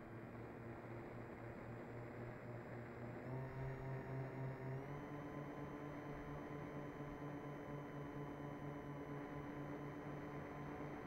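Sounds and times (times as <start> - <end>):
electric model plane motor whine: 3.0 - 11.0.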